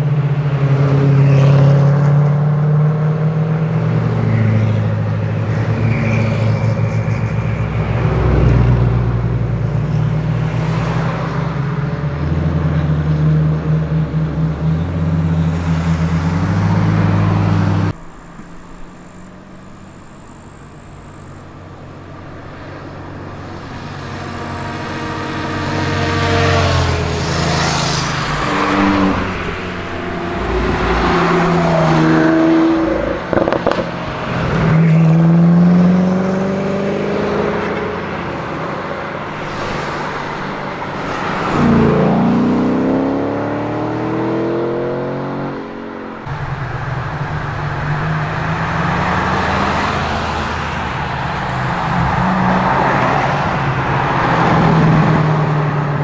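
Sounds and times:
steady engine drone: 11.3s - 36.2s, 37.0s - 56.0s.

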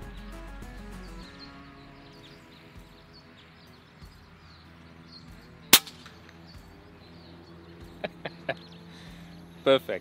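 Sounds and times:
air rifle shot: 5.7s - 6.2s.

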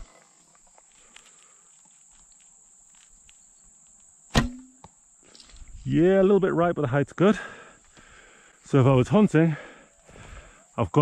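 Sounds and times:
high insect chirring: 0.3s - 6.2s
bowstring snap: 4.3s - 4.9s.

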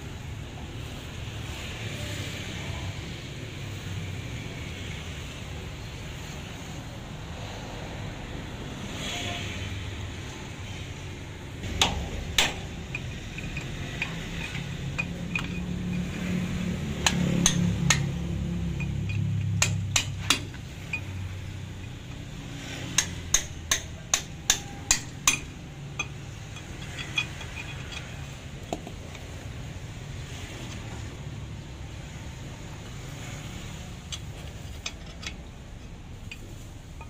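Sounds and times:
hammer striking steel punch: 11.6s - 12.8s, 17.0s - 18.1s, 22.9s - 26.1s.

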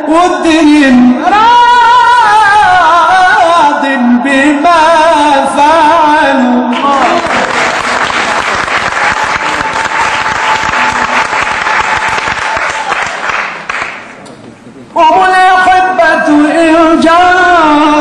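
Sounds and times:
audience applause: 6.7s - 14.2s
man chanting melismatically: 15.0s - 18.0s.

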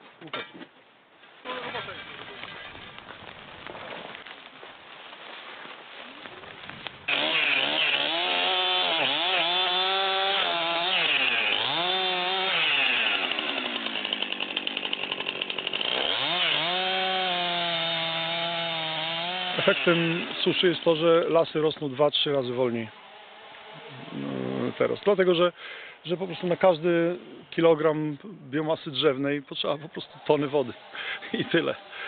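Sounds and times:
chainsaw cutting wood: 7.1s - 21.1s, 22.9s - 25.1s, 30.1s - 32.0s.

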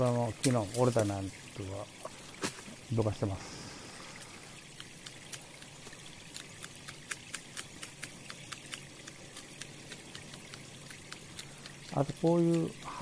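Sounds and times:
small stream trickling: 0.0s - 13.0s
small sharp ticks: 4.1s - 13.0s.

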